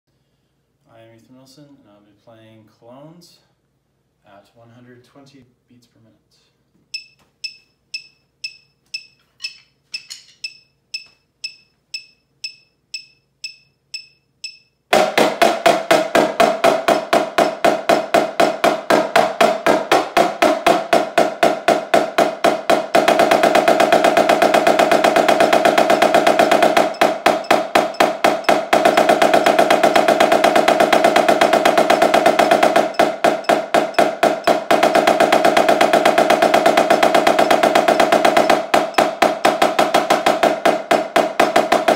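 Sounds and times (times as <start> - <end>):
metronome clicking: 7.0 - 14.7
snare drum rolls: 14.9 - 41.9.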